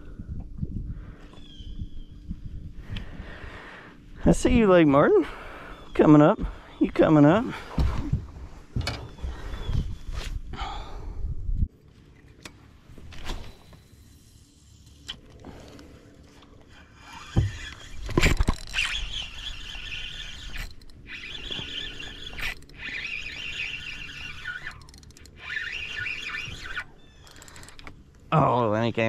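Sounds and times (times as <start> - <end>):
fishing reel whirring: 13.5 - 28.0.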